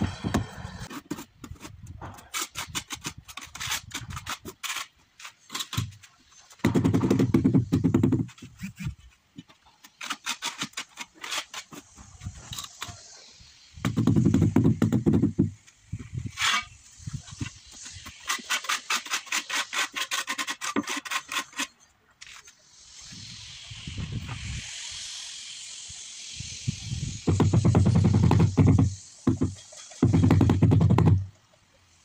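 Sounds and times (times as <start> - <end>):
trowel scraping on tiles: 17.4 - 22.6.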